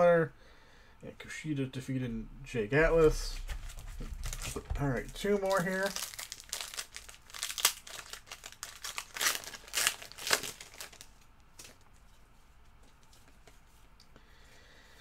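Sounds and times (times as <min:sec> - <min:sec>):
foil wrapper crinkling and tearing: 0:03.3 - 0:11.8.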